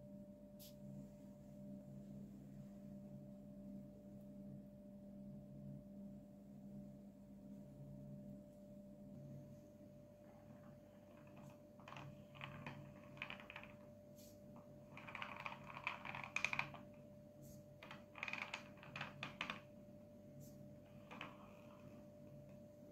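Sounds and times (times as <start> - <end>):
faint steady hum: 0.0 - 22.9
wooden board clicking and scraping: 10.4 - 13.8, 14.9 - 16.9, 17.8 - 19.7, 20.9 - 22.0.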